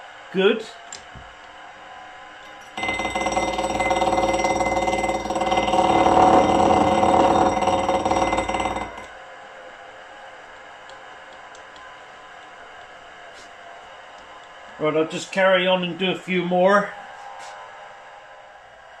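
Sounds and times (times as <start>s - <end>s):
milling machine cutting metal: 2.6s - 9.1s.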